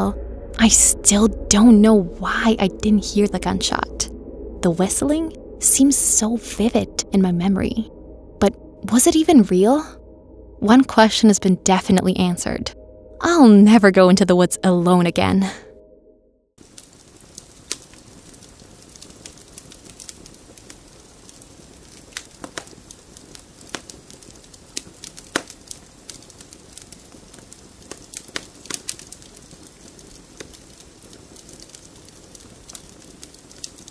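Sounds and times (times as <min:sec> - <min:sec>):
campfire crackling: 0:16.6 - 0:33.9.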